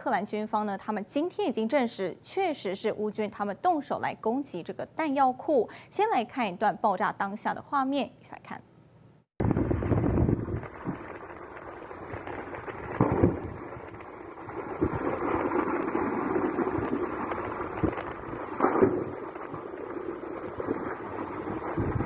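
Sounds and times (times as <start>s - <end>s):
dull explosion booms: 9.4s - 22.0s
wind buffeting microphone: 9.4s - 22.0s.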